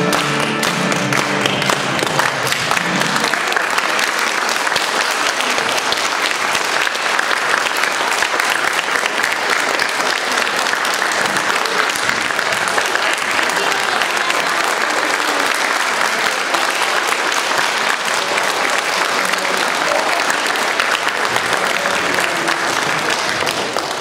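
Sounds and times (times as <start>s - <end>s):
music: 0.0s - 3.3s
audience applauding: 0.0s - 24.0s.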